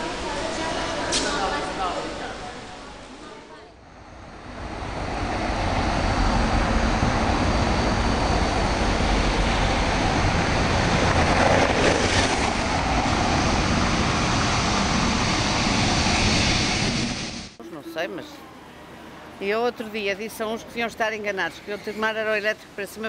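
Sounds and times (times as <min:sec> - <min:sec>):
tram wheels rumbling and rattling: 0:03.8 - 0:17.6.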